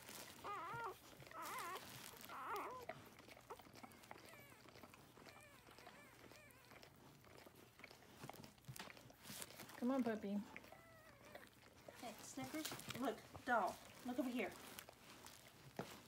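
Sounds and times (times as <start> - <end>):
puppy crying: 0.3 - 7.0, 10.6 - 12.0.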